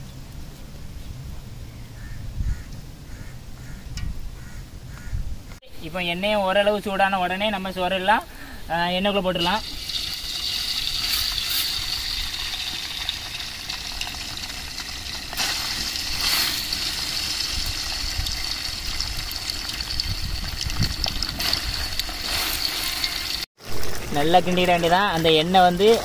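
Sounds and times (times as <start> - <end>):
oil sizzling in a pot: 9.3 - 26.0.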